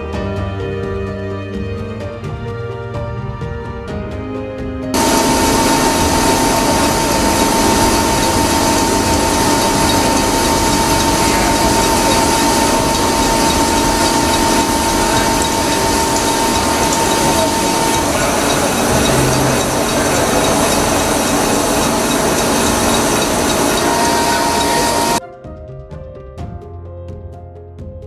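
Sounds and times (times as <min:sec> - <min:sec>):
music: 0:00.0 - 0:28.0
lathe cutting steel: 0:05.0 - 0:25.2
steady whine: 0:05.0 - 0:25.2.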